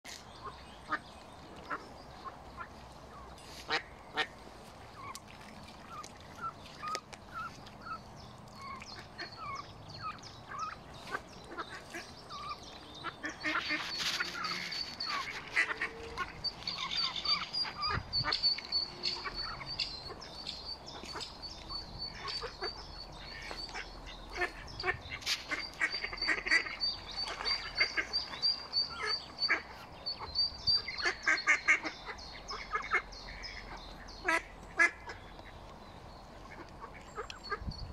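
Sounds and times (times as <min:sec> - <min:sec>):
ducklings peeping: 0:05.9 - 0:35.5.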